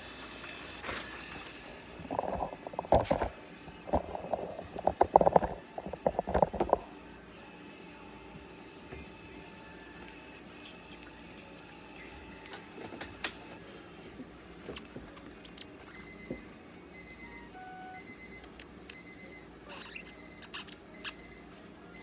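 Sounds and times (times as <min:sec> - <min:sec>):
steady machine hum: 0:00.0 - 0:14.7
clicks and rustles: 0:02.0 - 0:06.8.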